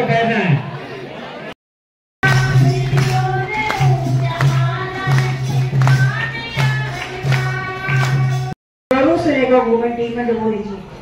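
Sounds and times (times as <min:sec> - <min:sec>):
music with singing: 0:02.2 - 0:08.6.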